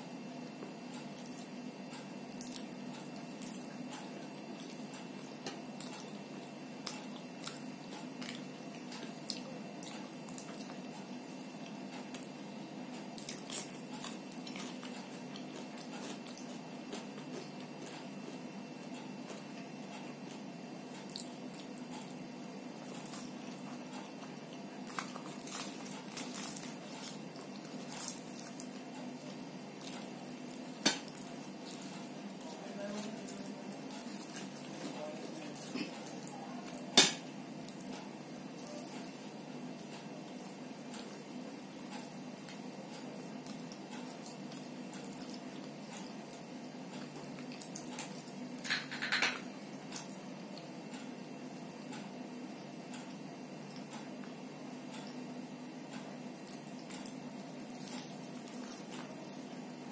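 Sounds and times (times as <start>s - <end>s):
steady low hum: 0.0s - 59.9s
person chewing and lip smacking: 0.6s - 12.3s, 12.9s - 51.1s, 52.9s - 55.2s, 55.9s - 59.9s
wet squishes of food: 0.9s - 48.7s, 49.5s - 59.9s
clicks and taps on ceramic plates: 48.7s - 49.4s.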